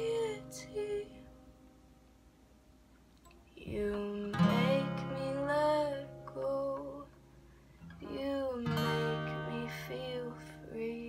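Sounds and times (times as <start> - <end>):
woman singing: 0.0 - 1.3, 3.5 - 7.2, 8.0 - 11.0
acoustic guitar strumming: 4.3 - 6.3.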